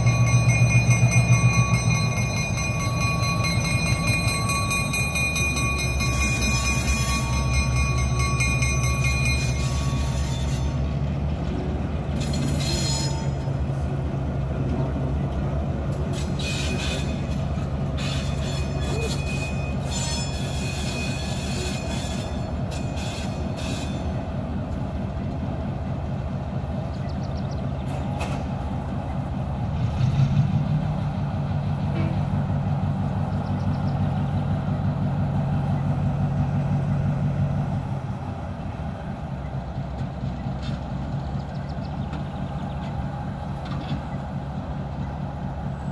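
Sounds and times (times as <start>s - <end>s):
diesel locomotive engine drone: 0.0s - 45.9s
high-pitched wheel squeal: 9.2s - 10.9s, 12.2s - 13.5s, 16.1s - 17.4s, 18.0s - 24.1s.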